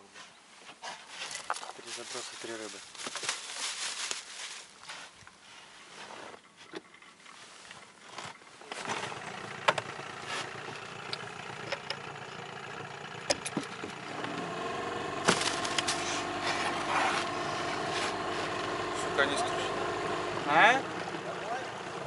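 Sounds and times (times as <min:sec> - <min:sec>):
outboard motor humming: 0:08.8 - 0:22.0.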